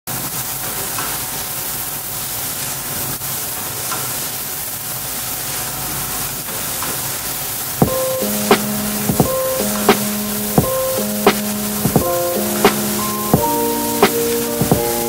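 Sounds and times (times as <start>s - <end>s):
fan hissing: 7.5s - 15.0s.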